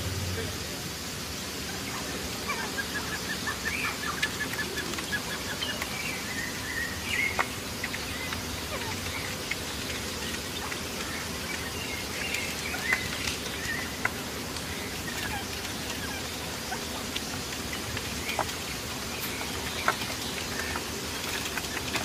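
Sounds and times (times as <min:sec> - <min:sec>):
birds chirping: 0:00.0 - 0:22.0
steady background hiss: 0:00.0 - 0:22.0.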